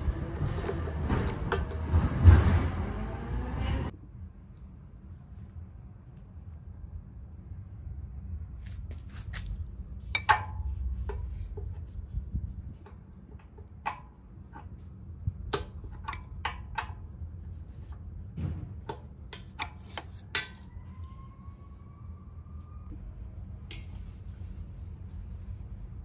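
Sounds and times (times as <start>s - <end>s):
steady low rumble: 0.0s - 16.4s.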